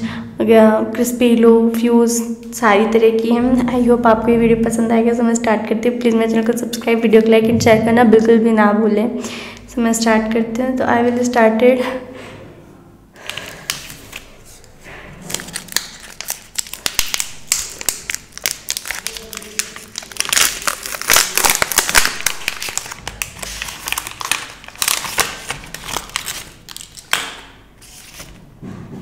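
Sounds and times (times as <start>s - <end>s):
plastic wrapper crinkling and tearing: 13.2s - 28.4s.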